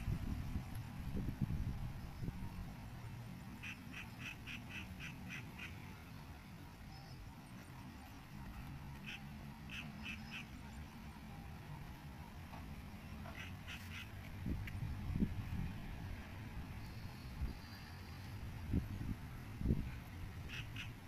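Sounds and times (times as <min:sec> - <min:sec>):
faint animal calls: 0:03.6 - 0:06.1, 0:09.0 - 0:11.5, 0:13.2 - 0:14.2, 0:20.4 - 0:21.0.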